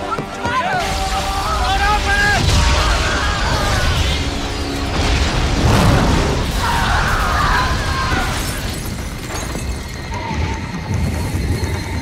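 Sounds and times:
flying debris: 0:01.0 - 0:12.0
explosion boom: 0:02.2 - 0:09.2.

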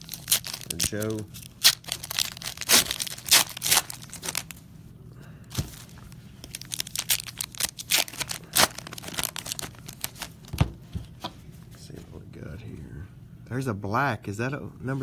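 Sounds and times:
wrappers tearing and crinkling: 0:00.0 - 0:04.6, 0:05.6 - 0:10.6.

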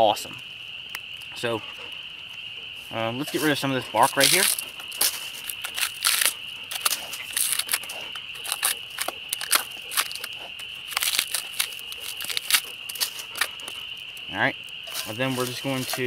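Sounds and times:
knife scraping bark: 0:02.9 - 0:14.1, 0:14.8 - 0:16.0.

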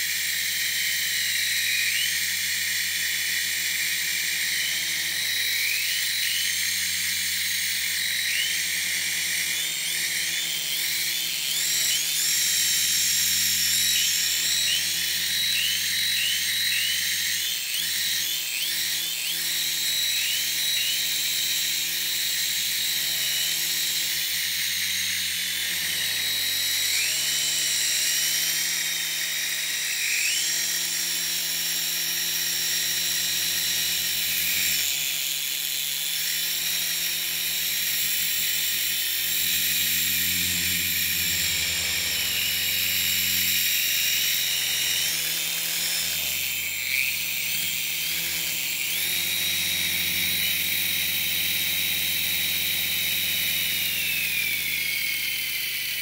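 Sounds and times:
model helicopter whine: 0:00.0 - 0:56.0
rotor hum: 0:37.5 - 0:53.4.

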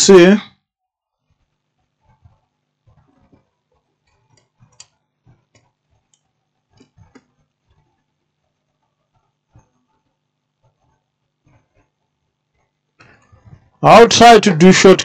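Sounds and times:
faint clicks and taps of tools: 0:01.2 - 0:08.1, 0:08.7 - 0:13.8.

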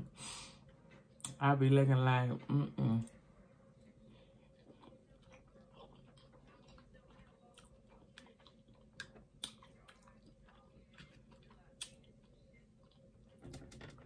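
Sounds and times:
person chewing food: 0:03.1 - 0:13.4.

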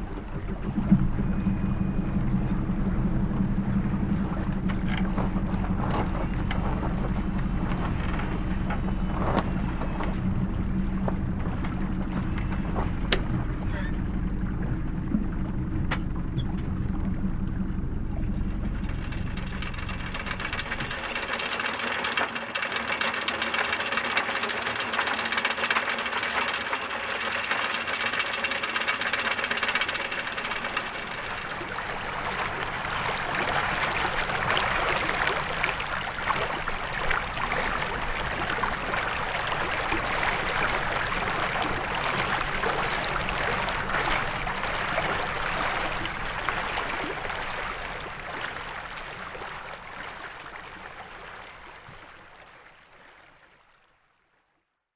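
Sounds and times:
anchor windlass motor hum: 0:00.0 - 0:52.8
anchor chain rattling: 0:18.4 - 0:32.1.

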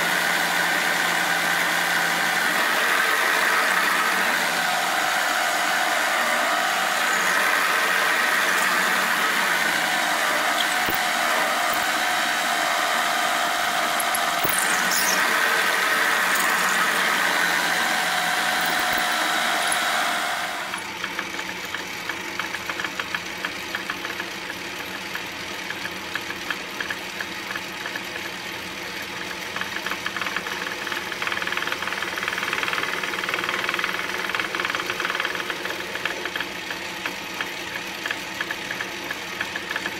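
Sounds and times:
drill squeal: 0:00.0 - 0:20.8
milling machine drilling metal: 0:00.0 - 0:20.9
metal lathe turning: 0:00.0 - 0:21.2.

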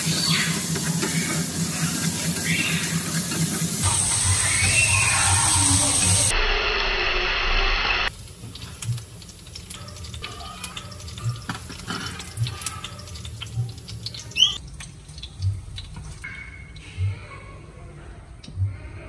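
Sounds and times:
kitchen splashing: 0:08.1 - 0:16.8.

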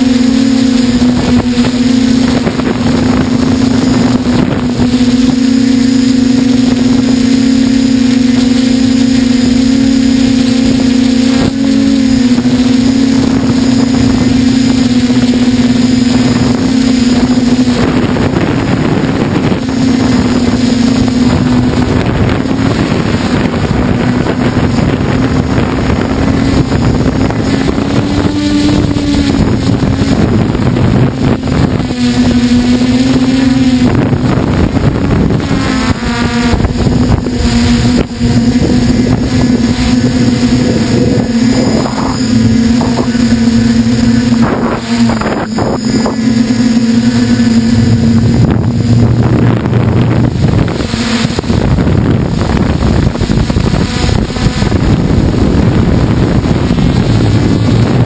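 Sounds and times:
drone motors and propellers droning: 0:00.0 - 0:58.0
wind rushing over microphone: 0:00.0 - 0:58.0.

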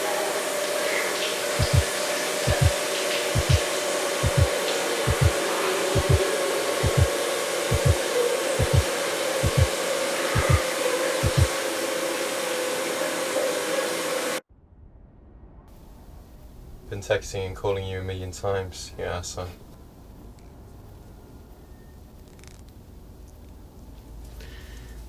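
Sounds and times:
shower water spraying: 0:00.0 - 0:14.4
heartbeat thumps: 0:01.6 - 0:03.6, 0:04.2 - 0:05.4, 0:06.0 - 0:08.0, 0:08.6 - 0:09.7, 0:10.4 - 0:10.6, 0:11.2 - 0:11.5.

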